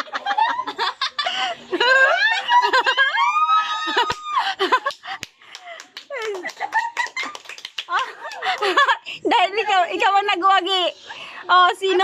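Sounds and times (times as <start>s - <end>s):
women laughing and shrieking: 0.0s - 4.9s.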